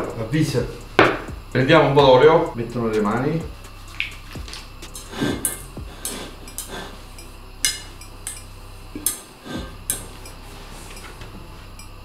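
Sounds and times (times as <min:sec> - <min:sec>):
steel bowl knocking and clinking: 0:07.6 - 0:10.2.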